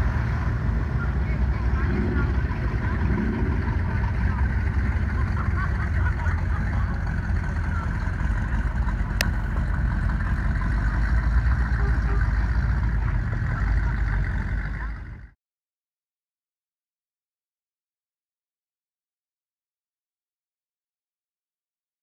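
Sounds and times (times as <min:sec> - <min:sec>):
car engines driving slowly past: 0:00.0 - 0:15.4.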